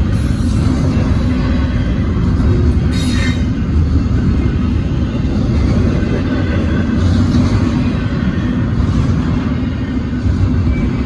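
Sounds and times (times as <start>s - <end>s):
freight train wheels rumbling: 0.0s - 11.0s
high-pitched train screech: 2.9s - 3.6s.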